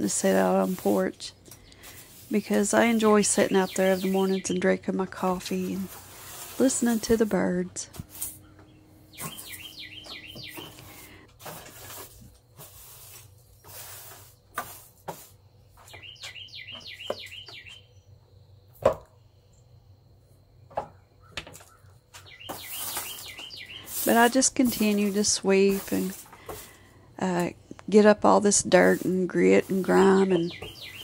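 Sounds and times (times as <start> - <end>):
broom sweeping grit off boards: 0.0 - 4.5, 5.2 - 7.3, 10.4 - 16.0, 22.4 - 26.8, 28.5 - 31.0
bird chirping: 1.4 - 5.7, 8.4 - 11.2, 15.7 - 18.6, 20.9 - 26.1, 28.7 - 31.0.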